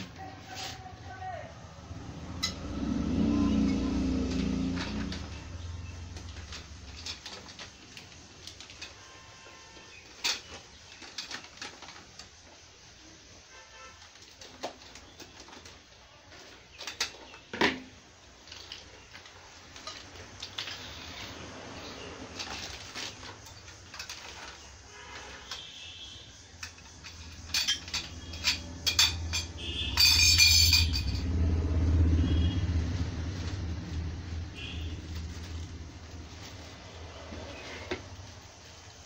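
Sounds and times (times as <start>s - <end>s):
metal tubes clicking and knocking: 2.2s - 2.9s, 3.6s - 13.0s, 13.9s - 31.6s
plastic wrapping crinkling: 32.8s - 39.0s.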